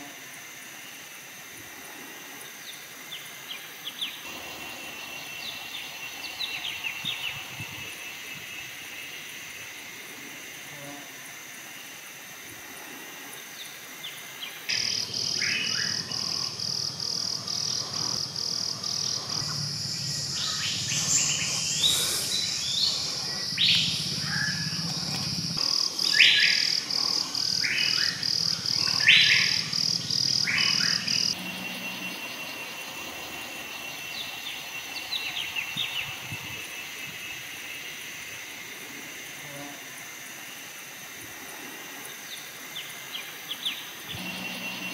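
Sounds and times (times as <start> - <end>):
fast pulsing insect call: 0.0 - 44.9
low hum: 14.7 - 36.3, 44.2 - 44.9.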